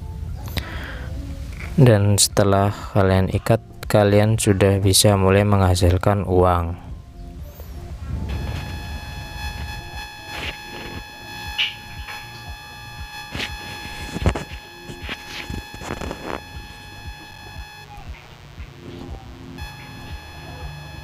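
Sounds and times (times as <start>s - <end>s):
high buzzing tone: 8.2s - 21.0s.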